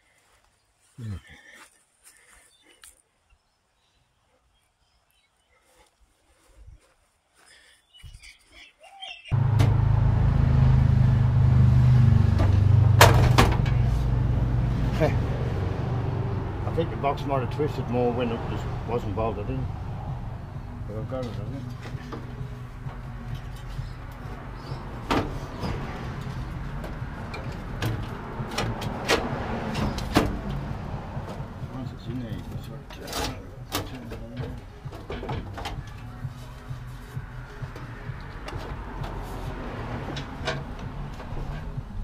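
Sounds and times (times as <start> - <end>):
engine idling: 9.4 - 15.5.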